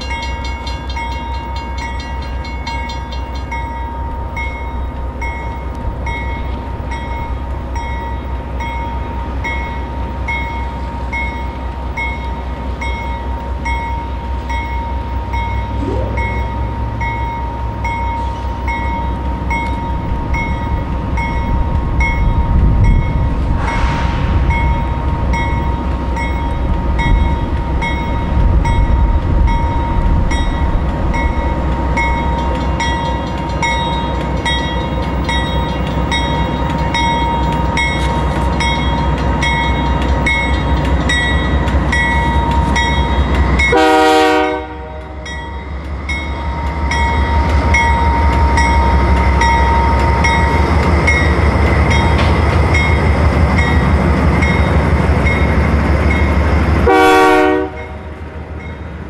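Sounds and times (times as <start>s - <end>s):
locomotive engine rumble: 0.0s - 59.0s
steady high tone: 12.9s - 20.7s
repeating high sound: 15.8s - 16.6s.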